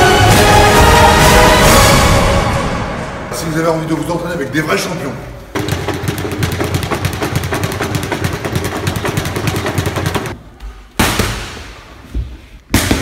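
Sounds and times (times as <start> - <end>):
speed bag rattling: 5.6 - 10.4.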